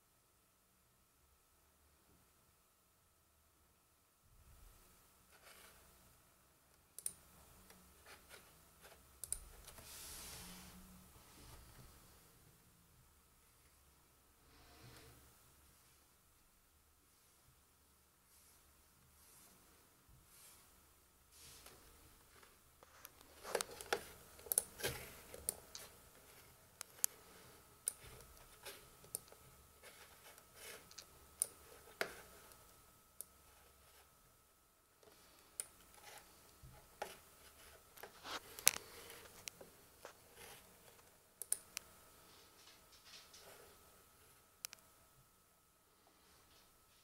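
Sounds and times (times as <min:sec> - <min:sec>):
faint high whine: 0:02.8 - 0:47.0
laptop touchpad and keys clicking: 0:23.1 - 0:25.9.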